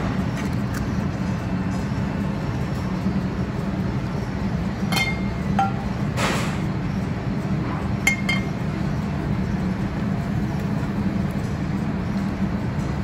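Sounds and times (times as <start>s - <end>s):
low kitchen hum: 0.0s - 13.0s
metal bowl clinking: 4.9s - 5.9s.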